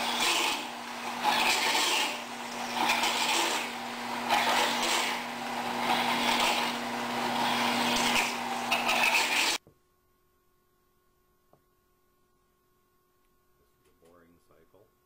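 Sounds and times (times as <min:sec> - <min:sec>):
drill cutting and scraping metal: 0:00.0 - 0:09.6
lathe low hum: 0:00.0 - 0:09.6.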